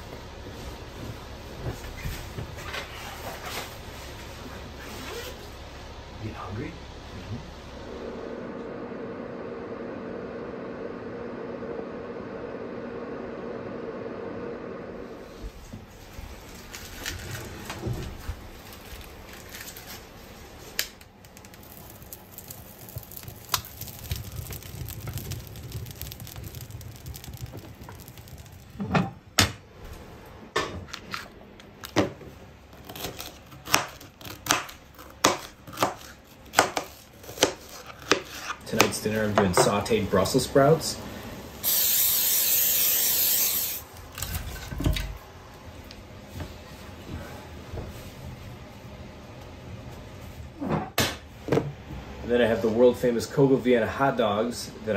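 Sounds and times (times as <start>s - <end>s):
wood fire crackling and popping: 15.3s - 46.0s
sticks pushed into fire: 16.6s - 29.6s
aerosol spray hissing: 41.6s - 43.8s.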